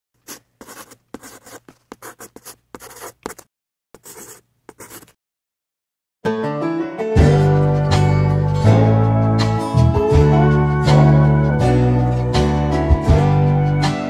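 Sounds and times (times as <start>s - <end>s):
pen scratching on paper: 0.2s - 5.2s
music: 6.2s - 14.0s.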